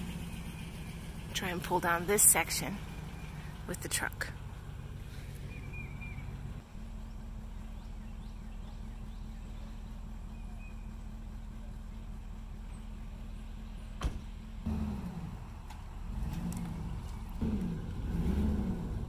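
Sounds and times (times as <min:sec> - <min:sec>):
pickup truck idling: 0:00.0 - 0:19.0
faint bird chirps: 0:05.4 - 0:14.0
car door shutting: 0:14.0 - 0:14.4.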